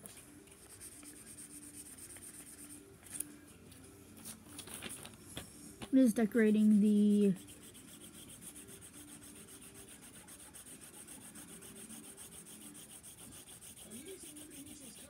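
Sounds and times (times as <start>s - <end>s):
marker scratching on paper: 0.6s - 2.8s, 7.1s - 15.0s.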